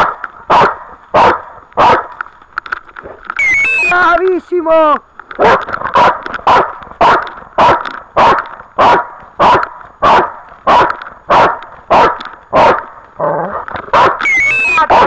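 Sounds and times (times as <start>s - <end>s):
dog barking: 0.0s - 2.1s, 5.4s - 12.9s, 13.9s - 15.0s.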